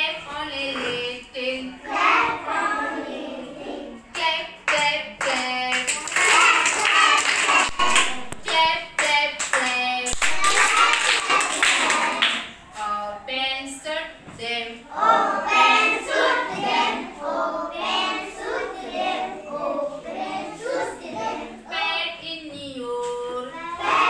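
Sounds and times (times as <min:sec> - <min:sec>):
children singing in chorus: 0:00.6 - 0:04.1, 0:05.8 - 0:09.3, 0:10.1 - 0:12.4, 0:14.7 - 0:22.0, 0:23.1 - 0:24.0
children clapping: 0:04.7 - 0:12.6.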